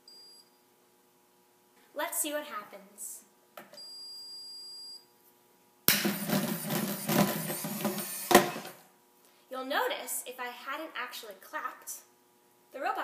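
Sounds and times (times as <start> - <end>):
hand clap: 5.9 - 6.1
sharp knock: 5.9 - 8.8.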